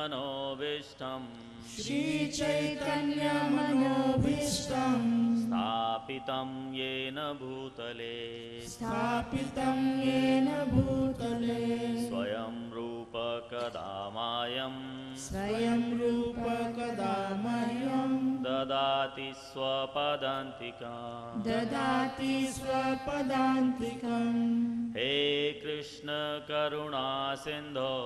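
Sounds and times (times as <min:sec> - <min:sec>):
person chanting a mantra: 0:00.0 - 0:28.0.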